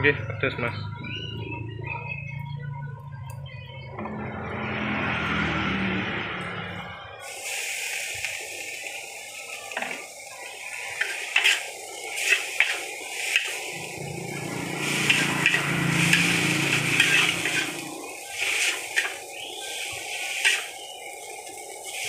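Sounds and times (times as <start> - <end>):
noodles sizzling in wok: 7.2 - 22.0
spatula scraping wok: 9.7 - 22.0.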